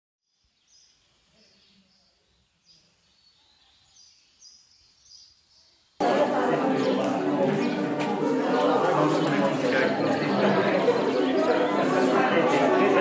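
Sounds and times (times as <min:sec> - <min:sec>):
faint bird chirps: 0:00.3 - 0:06.0.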